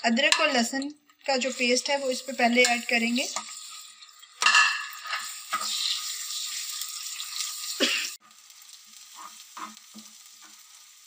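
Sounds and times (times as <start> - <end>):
paste sizzling in hot oil: 1.3 - 11.0
metal spatula scraping: 4.4 - 10.9.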